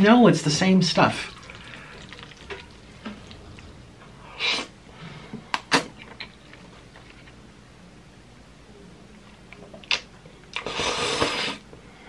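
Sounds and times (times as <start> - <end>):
person slurping noodles: 1.2 - 4.8.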